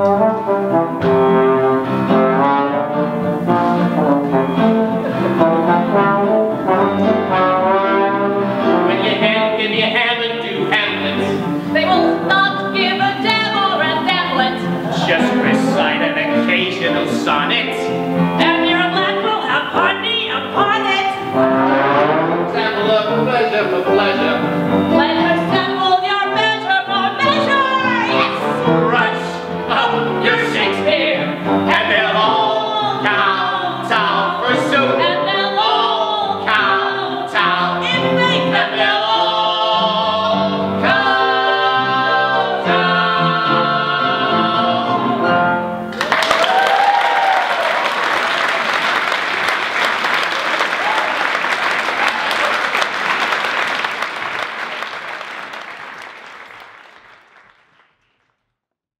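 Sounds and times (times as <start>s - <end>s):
small live band playing: 0.0s - 47.9s
man and woman singing: 8.8s - 21.4s, 22.4s - 45.4s
audience applauding and cheering: 45.9s - 58.4s.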